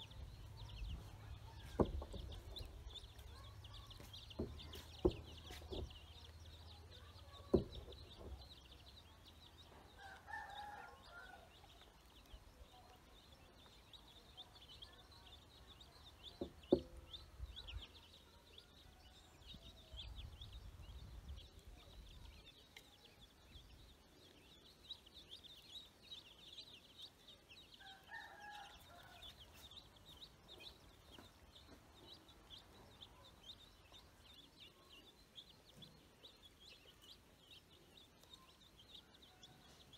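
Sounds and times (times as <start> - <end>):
ducklings and chicks peeping: 0.0 - 39.9.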